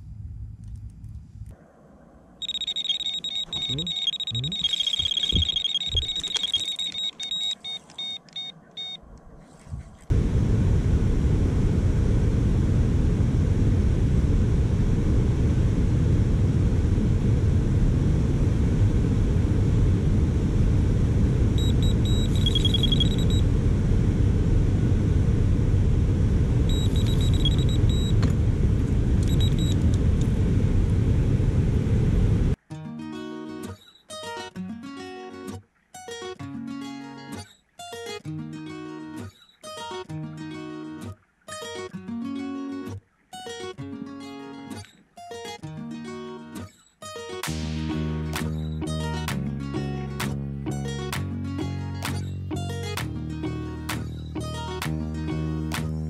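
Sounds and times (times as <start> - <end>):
bite alarm beeping: 2.4 - 9.0, 21.6 - 23.4, 26.7 - 28.2, 29.2 - 29.8.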